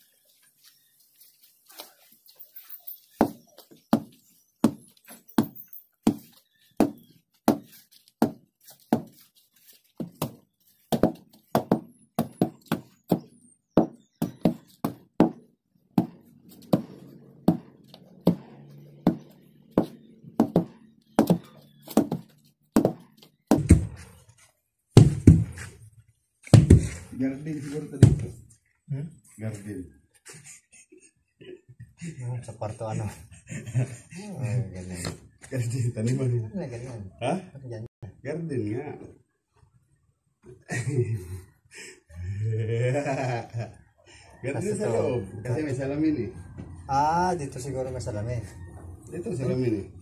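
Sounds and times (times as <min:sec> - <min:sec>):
hand tampers pounding soil: 0:03.2 - 0:09.3, 0:16.0 - 0:24.1, 0:26.4 - 0:27.1.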